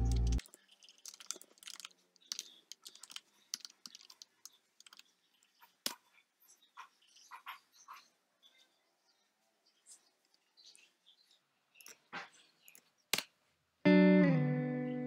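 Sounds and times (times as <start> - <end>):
keyboard typing: 0.0 - 5.1.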